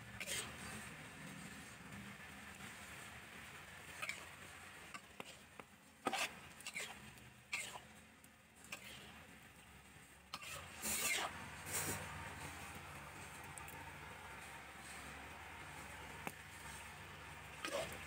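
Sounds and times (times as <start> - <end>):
metal spatula scraping a wok: 0.1 - 0.8, 6.1 - 7.0, 10.4 - 12.6.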